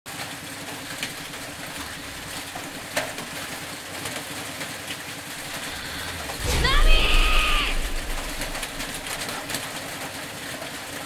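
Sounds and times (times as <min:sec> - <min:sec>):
low rumble and hiss: 0:05.2 - 0:09.7.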